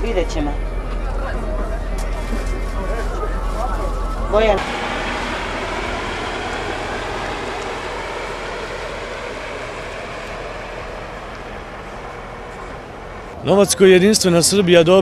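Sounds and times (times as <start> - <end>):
road noise: 1.8 - 14.9
diesel coach engine pulling away: 2.9 - 13.4.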